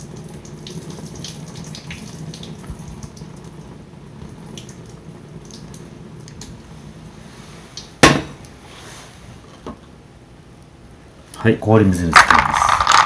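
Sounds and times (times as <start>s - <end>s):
hot water pouring and splashing: 0.0s - 9.3s.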